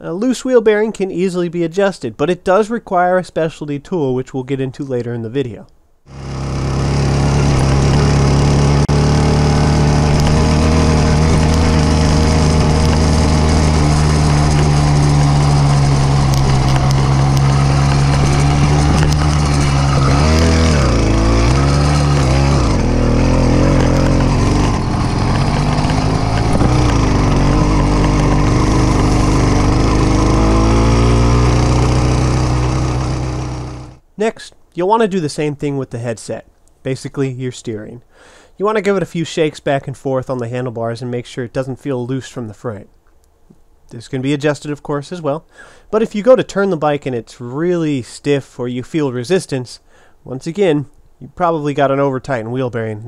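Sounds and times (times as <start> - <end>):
small bicycle engine running: 6.1 - 34.0.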